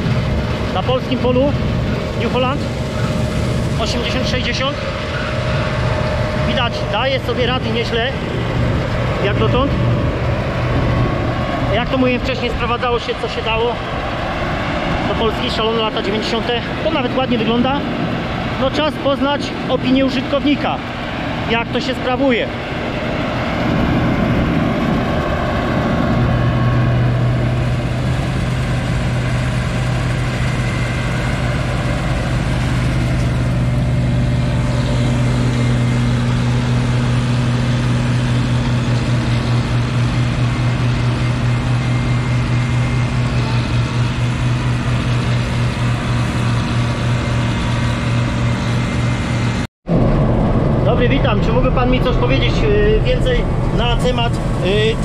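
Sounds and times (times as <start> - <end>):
combine harvester engine hum: 0.0 - 55.0
threshing machinery noise: 0.0 - 55.0.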